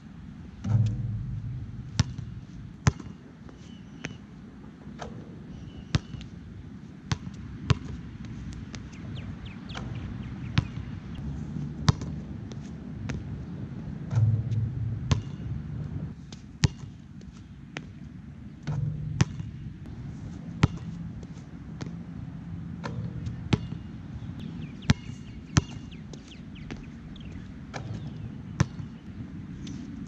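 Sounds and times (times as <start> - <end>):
low background rumble: 0.0 - 4.8, 9.1 - 16.2, 18.2 - 28.6
basketball bouncing on court: 0.6 - 3.2, 7.1 - 8.0, 9.7 - 11.0, 11.9 - 12.2, 14.1 - 15.8, 16.6 - 16.9, 18.7 - 19.6, 20.6 - 21.0, 22.8 - 23.9, 24.9 - 25.9, 27.8 - 29.0.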